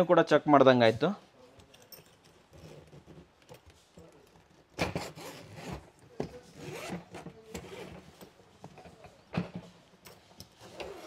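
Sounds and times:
suitcase zipper opening: 4.8 - 5.9, 6.6 - 8.0, 10.7 - 11.0.

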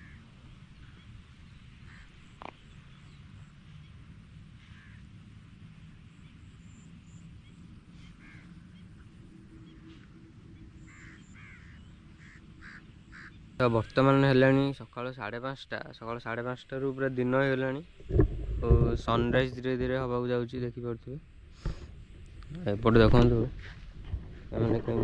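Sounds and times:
crows cawing: 0.0 - 0.4, 1.8 - 2.6, 4.6 - 5.1, 8.0 - 13.6
low steady rumble: 0.0 - 14.9, 16.7 - 25.0.

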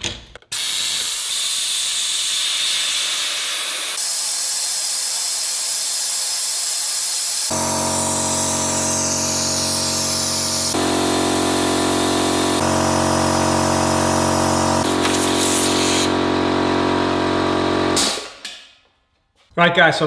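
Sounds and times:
compressed air hissing: 0.5 - 10.9, 14.8 - 16.1
air compressor motor running: 0.6 - 18.3.

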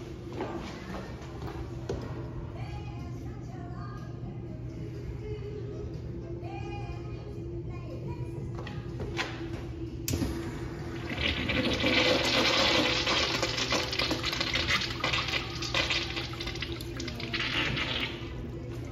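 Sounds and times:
water rushing through urinal: 10.9 - 18.4.

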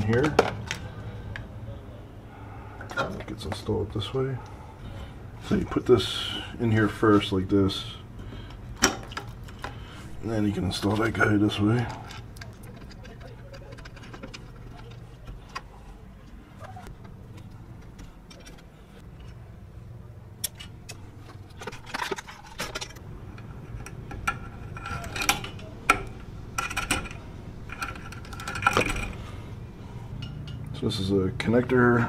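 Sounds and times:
steady low hum: 0.0 - 32.0
hands handling small hardware: 10.8 - 19.4, 20.4 - 29.3.

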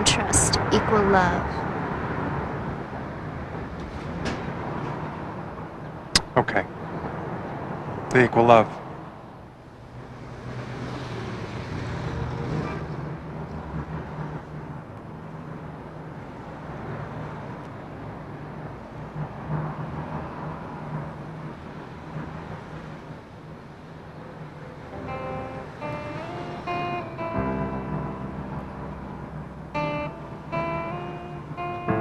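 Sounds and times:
street noise: 0.0 - 32.0
low engine hum: 24.8 - 32.0.

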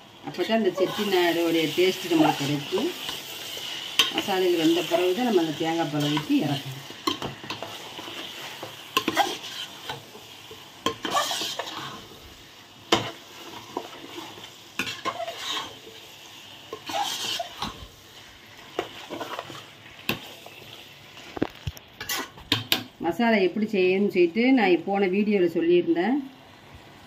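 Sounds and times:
faint sizzling: 0.0 - 27.0
spoon scraping metal pot: 9.0 - 10.0, 10.8 - 12.0, 13.8 - 15.8, 16.7 - 17.8, 21.4 - 22.8.

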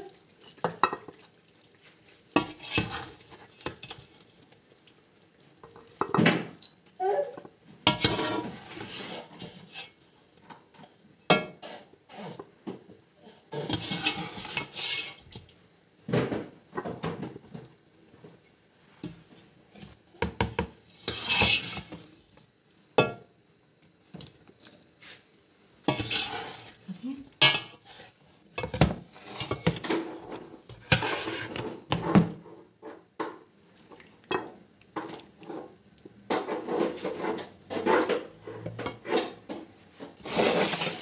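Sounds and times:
plastic ladle scraping pot: 2.4 - 4.0, 7.9 - 10.0, 13.6 - 15.3, 21.0 - 22.1, 25.9 - 26.8, 29.1 - 32.1, 40.1 - 41.0.

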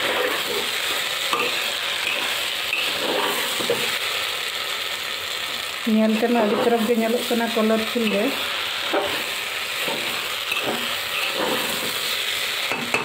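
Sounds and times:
frying sizzle: 0.0 - 13.0
metal ladle scraping a pot: 1.4 - 3.9, 8.9 - 12.1.

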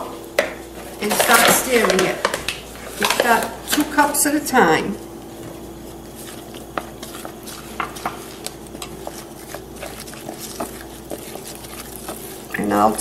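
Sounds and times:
wooden spoon stirring dough in bowl: 0.8 - 13.0.

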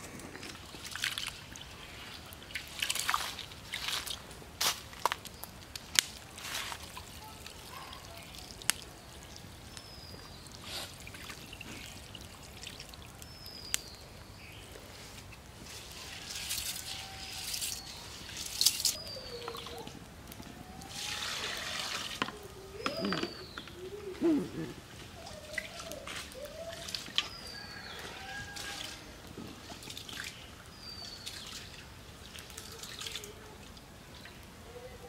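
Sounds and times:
water trickling onto ground: 0.0 - 35.0
water pouring into bowl: 20.9 - 22.4.

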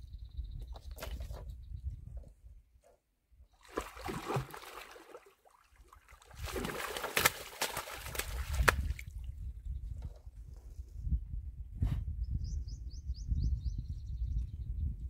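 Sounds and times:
fish splashing and thrashing: 3.6 - 9.1
sharp slaps of fish landing: 6.4 - 9.0.

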